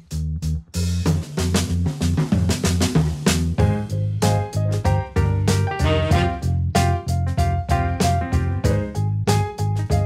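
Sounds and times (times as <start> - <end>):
bass line: 0.0 - 10.0
drum hits: 1.0 - 10.0
keyboard chords: 3.6 - 10.0.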